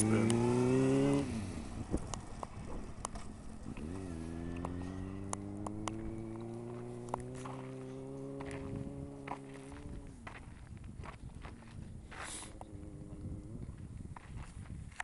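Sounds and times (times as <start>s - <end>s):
motorcycle engine running: 0.0s - 14.6s
sharp clicks and taps: 4.6s - 6.1s.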